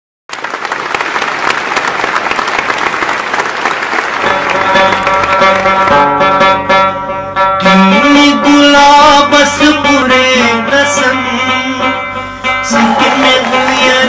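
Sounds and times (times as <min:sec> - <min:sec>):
audience clapping: 0:00.3 - 0:06.1, 0:12.7 - 0:14.0
plucked string folk music: 0:04.2 - 0:14.0.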